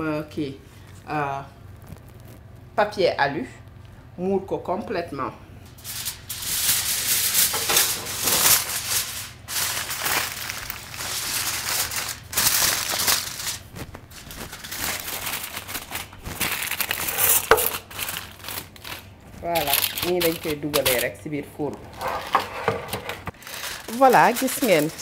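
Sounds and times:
aluminium foil crinkling: 1.6 - 2.6, 5.7 - 21.2, 23.2 - 25.0.

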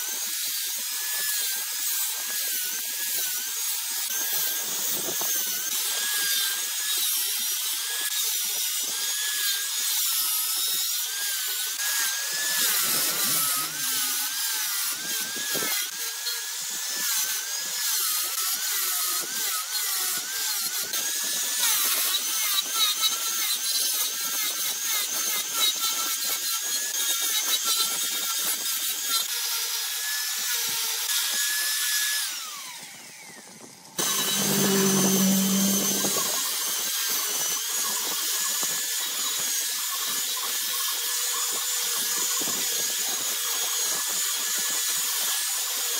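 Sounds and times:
angle grinder sanding wood: 0.0 - 32.7, 34.0 - 45.9
low hum: 34.0 - 36.4.

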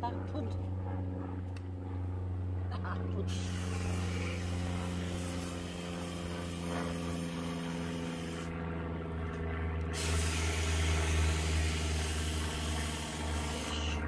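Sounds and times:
low mechanical hum: 0.0 - 14.0
hose nozzle spraying into cans: 10.0 - 14.0.

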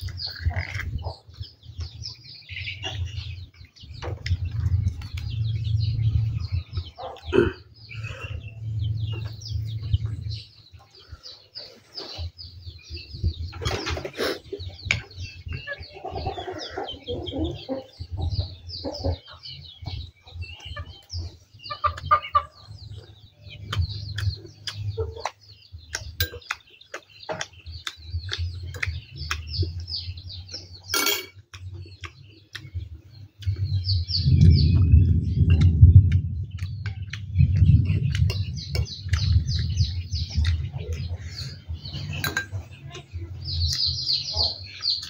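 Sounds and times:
quiet eating sounds: 0.0 - 13.1, 14.1 - 45.0
chickens clucking: 0.0 - 45.0
small birds chirping: 0.0 - 45.0
low muffled rumble: 0.3 - 11.3, 32.7 - 44.0.

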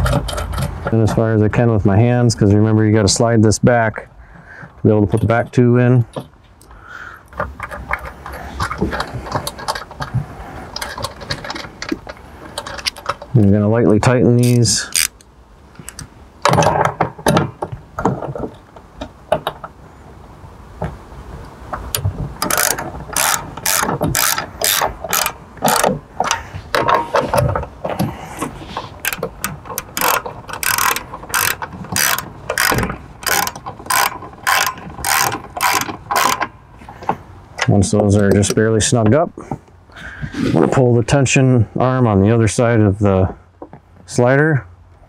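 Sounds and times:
hand ratchet clicking: 14.4 - 15.2, 22.4 - 27.1, 29.0 - 36.6.

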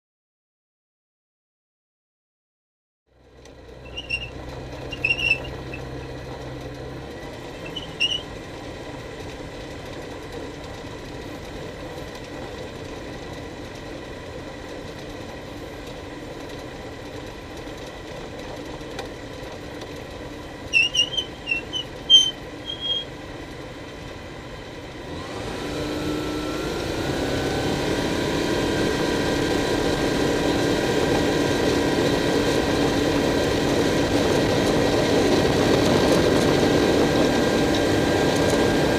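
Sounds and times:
light aircraft engine: 3.1 - 38.9
short high squeaks: 3.8 - 6.1, 7.5 - 8.3, 20.7 - 23.1.

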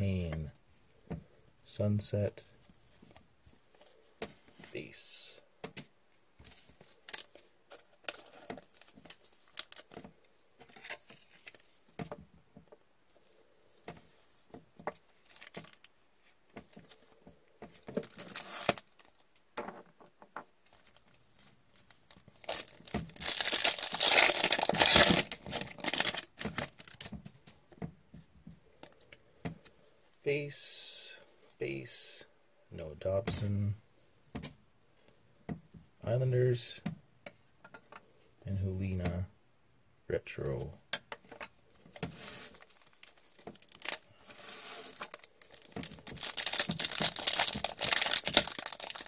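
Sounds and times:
wrapper crinkling and tearing: 6.9 - 9.9, 18.0 - 19.2, 21.8 - 27.1, 42.4 - 49.0.

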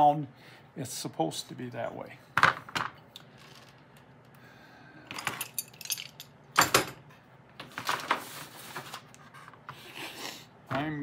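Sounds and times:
metal tools clinking: 5.1 - 6.8.

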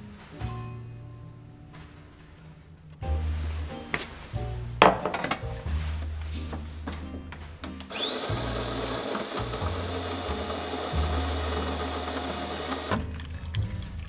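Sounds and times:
coffee grinder whine: 7.9 - 13.1.

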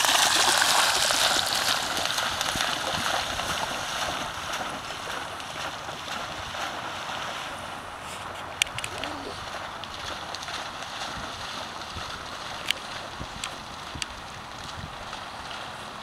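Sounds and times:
dog splashing in water: 0.0 - 7.7.

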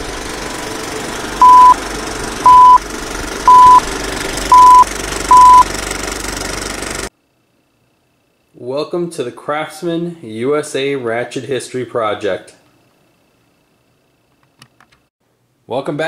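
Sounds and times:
short high beeps: 1.4 - 1.8, 2.5 - 2.8, 3.5 - 3.8, 4.5 - 5.6.

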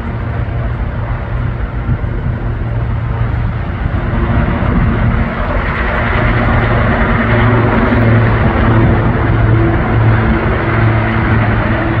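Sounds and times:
helicopter rotor thrum: 0.0 - 12.0
turbine hum: 0.0 - 12.0.

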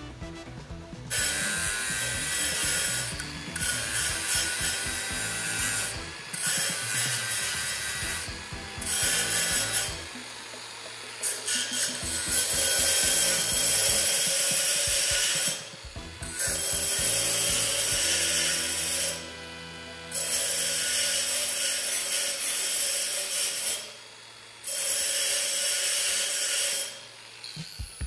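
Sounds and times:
angle grinder grinding steel: 0.0 - 28.0.

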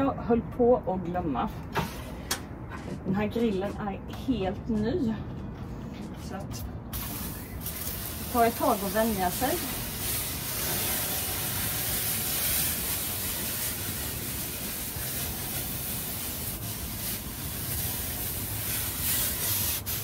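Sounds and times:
cooking spray hissing: 6.9 - 20.0.

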